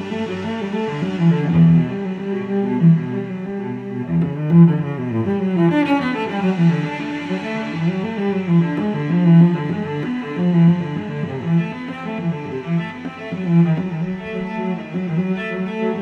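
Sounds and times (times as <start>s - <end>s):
instrumental music with low pulse: 0.0s - 16.0s.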